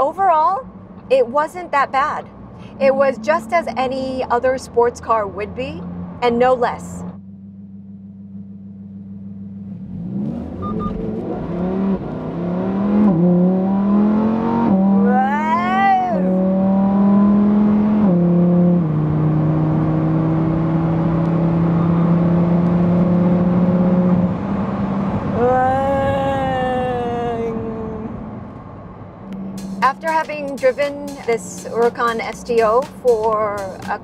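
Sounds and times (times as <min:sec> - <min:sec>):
car engine accelerating through gears: 0:07.0 - 0:32.8.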